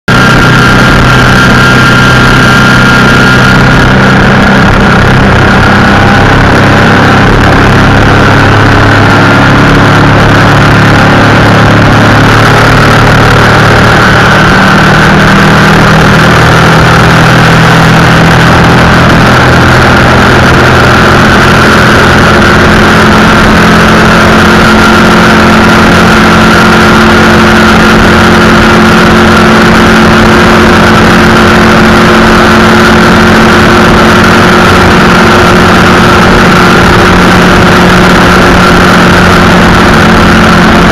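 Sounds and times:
boat engine droning: 0:00.0 - 0:40.9
rushing wind and water: 0:00.1 - 0:40.9.

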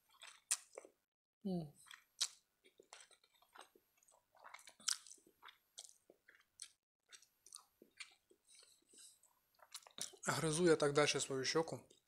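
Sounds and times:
wet chewing mouth clicks: 0:01.8 - 0:08.8.

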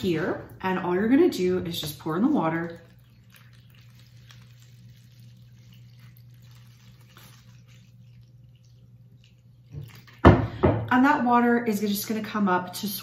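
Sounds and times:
water trickling into plastic tray: 0:01.4 - 0:10.6.

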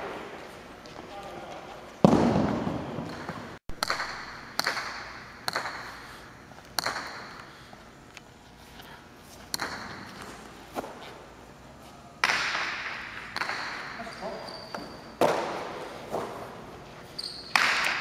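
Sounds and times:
ringing echo in hall: 0:01.1 - 0:06.2.

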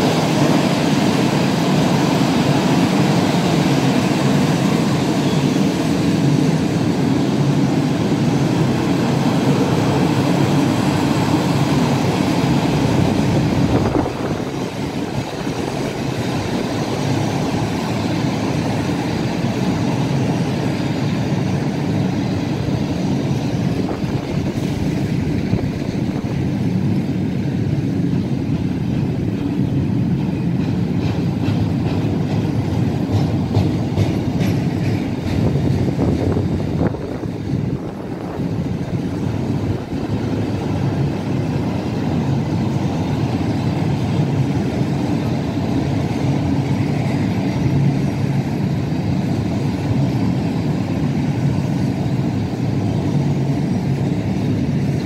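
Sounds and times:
freight wagons rumbling on rails: 0:00.0 - 0:55.0.

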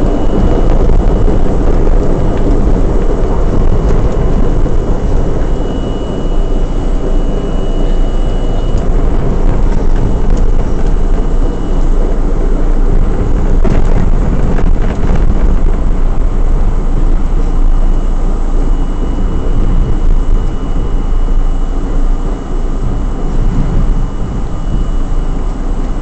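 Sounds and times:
thin high tone: 0:00.0 - 0:13.6, 0:16.7 - 0:26.0
subway train wheels rumbling on rail: 0:00.0 - 0:26.0.

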